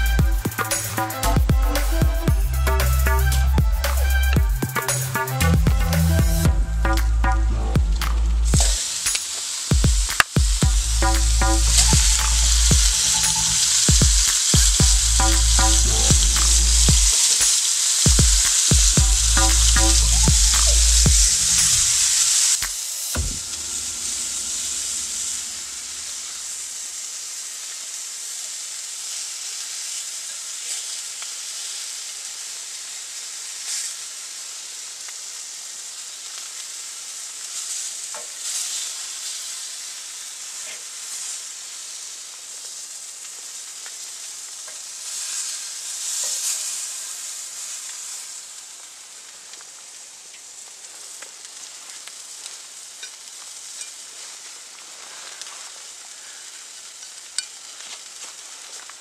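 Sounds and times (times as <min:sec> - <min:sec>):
patties sizzling in a pan: 0:07.9 - 0:59.0.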